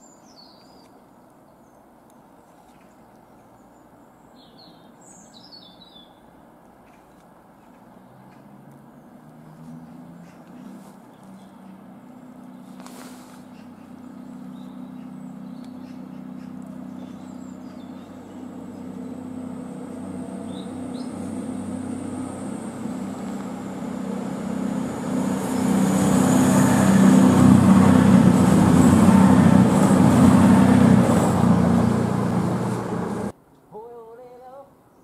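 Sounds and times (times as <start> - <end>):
diesel train engine drone: 9.8 - 33.4
train wheel and rail noise: 15.0 - 33.3.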